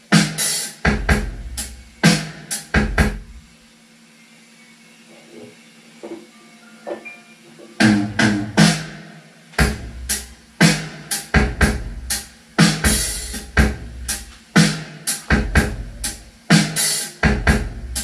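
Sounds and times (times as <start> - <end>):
drum-heavy music through speakers: 0.0 - 4.0, 5.0 - 18.0
deep kick and cymbal hits: 9.6 - 16.3.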